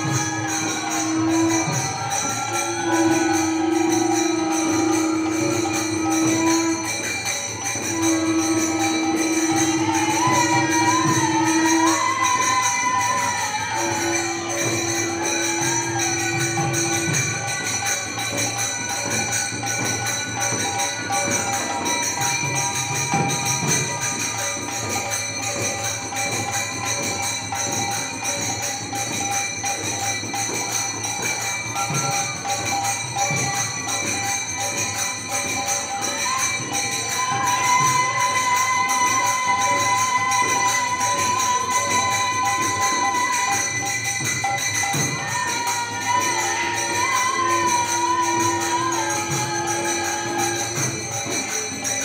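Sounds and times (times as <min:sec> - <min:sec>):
drums beating fast rhythm: 0:00.0 - 0:52.0
hand cymbals jingling: 0:00.0 - 0:52.0
harmonium holding notes: 0:00.0 - 0:52.0.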